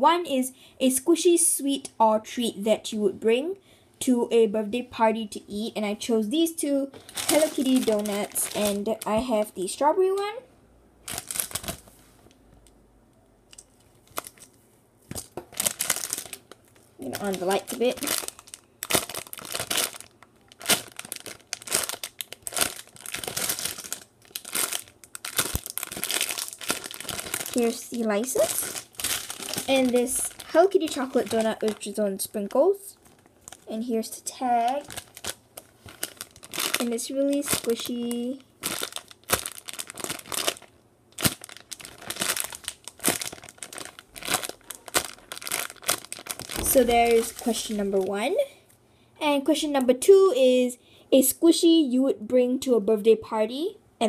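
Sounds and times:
plastic bags crinkling: 0:06.6 - 0:10.3, 0:11.0 - 0:12.0, 0:13.5 - 0:48.5.

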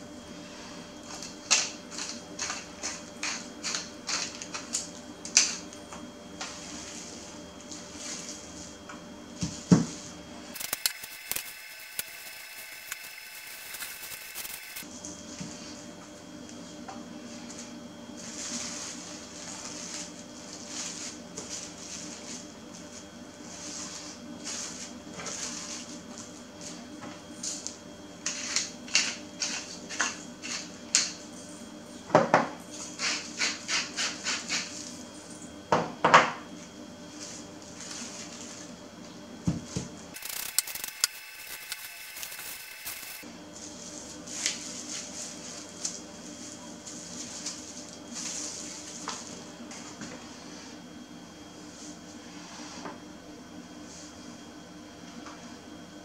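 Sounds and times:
pepper grinder grinding: 0:10.6 - 0:14.8, 0:40.2 - 0:43.2.

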